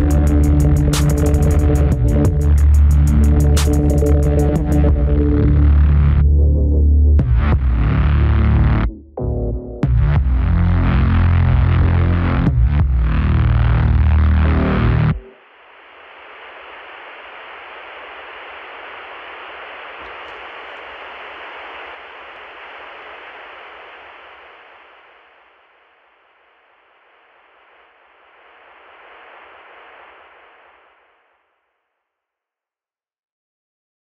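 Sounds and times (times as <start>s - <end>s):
television static hiss: 0.0s - 4.8s, 15.3s - 31.6s.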